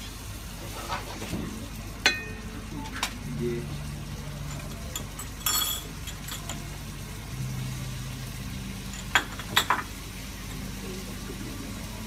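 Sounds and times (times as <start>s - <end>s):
spoon clinking ceramic bowls: 2.1s - 2.5s, 4.4s - 6.8s, 8.9s - 9.9s.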